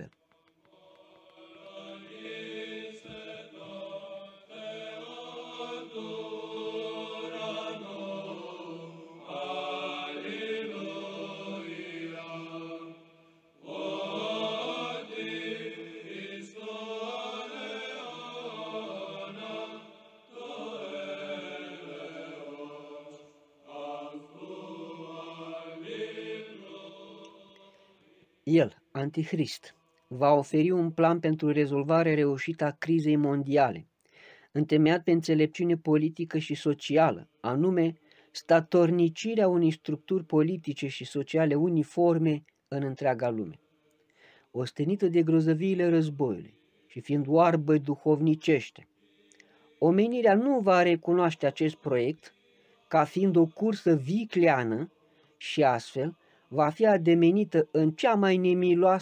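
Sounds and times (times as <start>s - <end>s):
voices chanting together: 0.0s - 28.8s, 45.3s - 59.0s.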